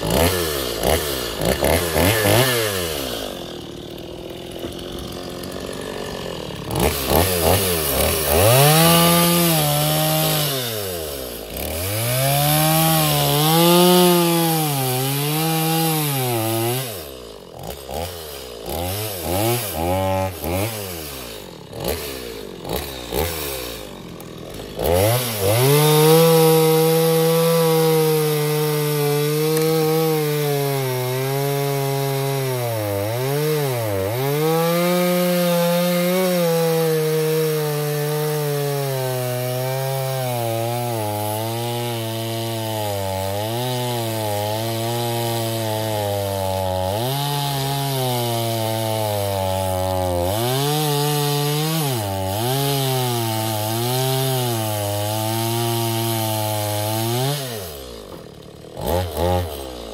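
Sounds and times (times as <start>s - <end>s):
chainsaw cutting logs: 0.0s - 59.9s
chainsaw pull-start: 0.0s - 59.9s.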